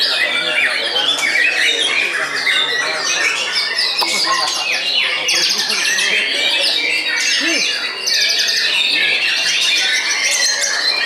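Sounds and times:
birds singing in chorus: 0.0s - 11.0s.

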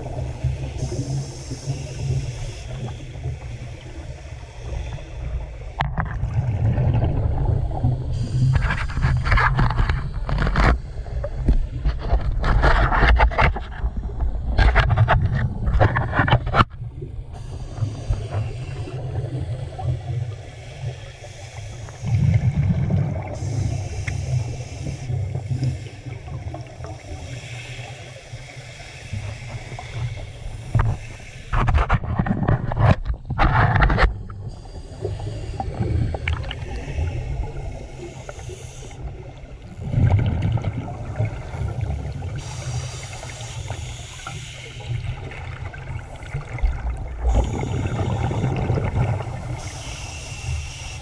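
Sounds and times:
low rumble of moving water: 0.0s - 51.0s
diver's exhaled bubbles underwater: 5.8s - 20.3s, 22.0s - 27.0s, 29.5s - 38.5s, 39.1s - 50.3s.

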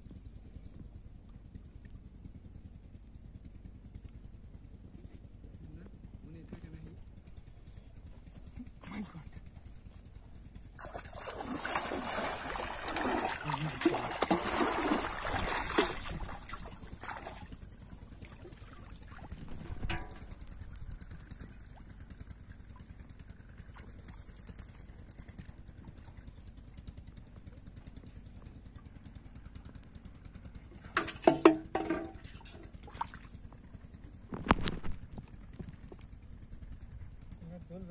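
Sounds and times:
water splashing as person wades: 10.7s - 20.4s, 32.7s - 33.5s.

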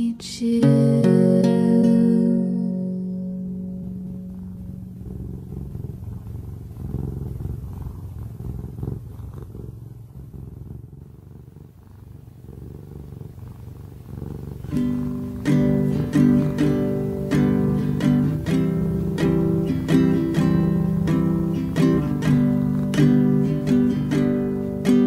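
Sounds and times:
cat purring: 0.0s - 25.0s
plucked guitar notes: 0.5s - 5.0s, 14.7s - 25.0s.

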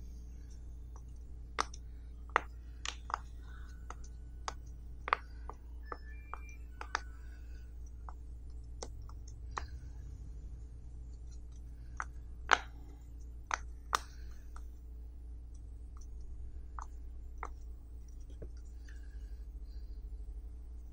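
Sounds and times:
fidget toy bubbles popping: 0.9s - 7.2s.

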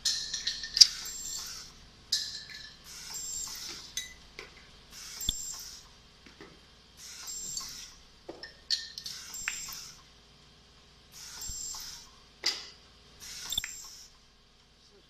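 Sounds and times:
metal parts clicking and clinking: 0.0s - 4.1s
air hiss: 9.1s - 10.0s, 11.1s - 12.1s, 13.2s - 14.2s.

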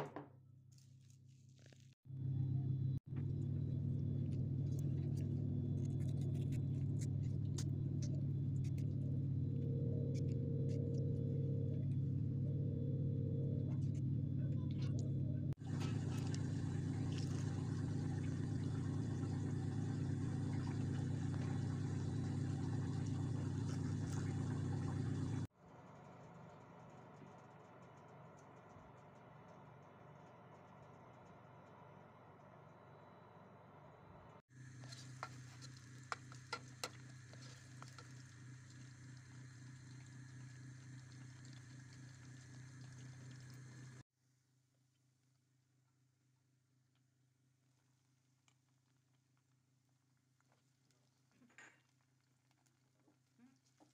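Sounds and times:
low hum: 2.1s - 28.7s, 30.2s - 44.0s.

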